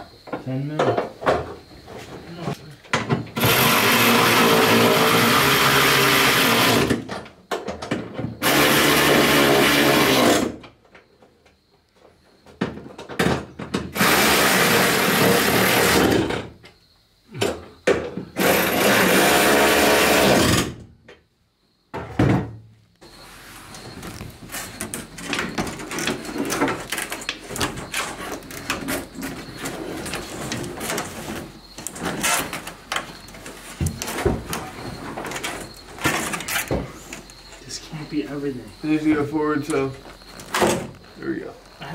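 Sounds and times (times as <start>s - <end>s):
cordless drill running: 3.4s - 6.9s, 18.4s - 20.6s.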